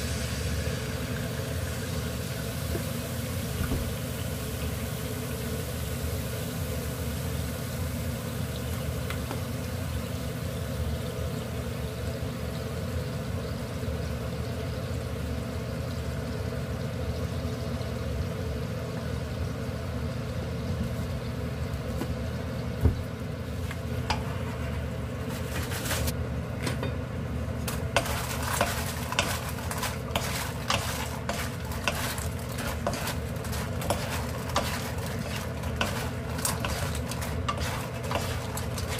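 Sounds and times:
sauce bubbling in a wok: 0:00.0 - 0:38.9
spatula clicking and scraping: 0:27.7 - 0:38.9.

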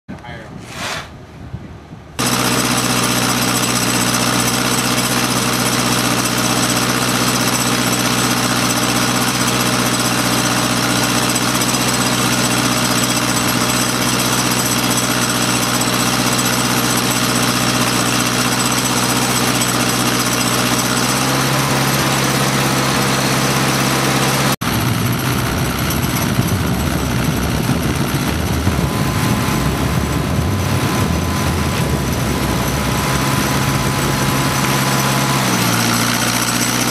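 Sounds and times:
air puffing from cylinders: 0:00.6 - 0:01.2
radial engine turning over on starter: 0:02.2 - 0:36.9.

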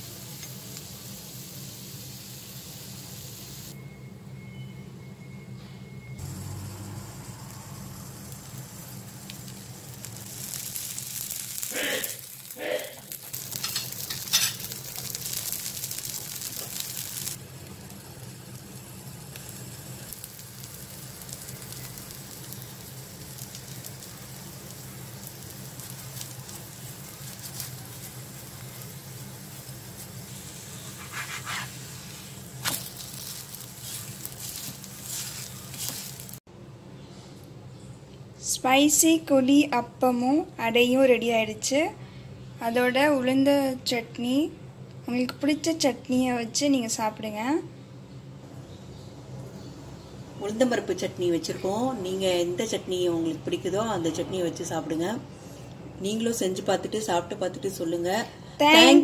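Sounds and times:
batter sizzling in oil: 0:00.0 - 0:03.8, 0:06.2 - 0:36.5
metal spatula scraping griddle: 0:13.6 - 0:14.7, 0:30.6 - 0:36.3.

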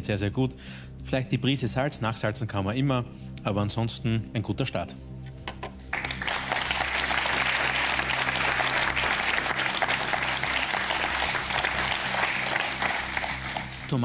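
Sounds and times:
background music: 0:00.0 - 0:14.0
audience applauding: 0:05.9 - 0:14.0.

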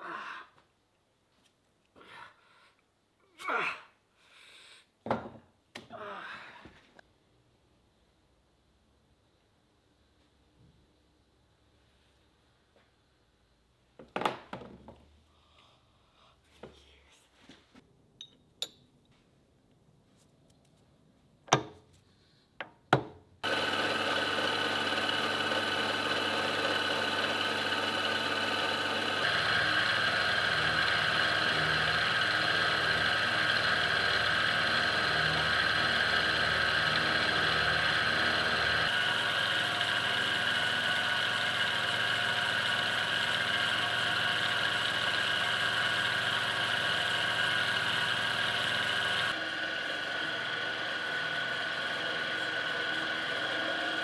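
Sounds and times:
milling machine cutting steel: 0:23.4 - 0:54.0.

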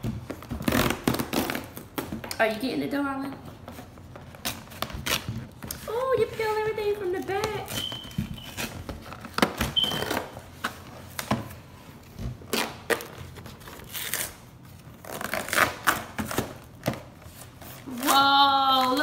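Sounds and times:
cardboard packaging being peeled open: 0:00.4 - 0:02.0, 0:07.2 - 0:11.3, 0:12.4 - 0:18.9.

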